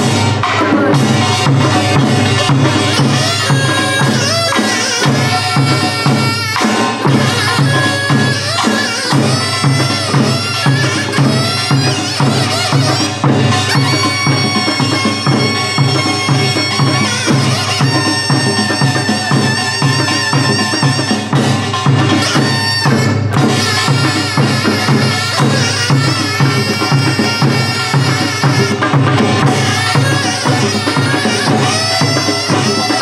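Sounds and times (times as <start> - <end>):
steady drum beat: 0.0 - 33.0
nasal double-reed wind melody: 6.9 - 33.0.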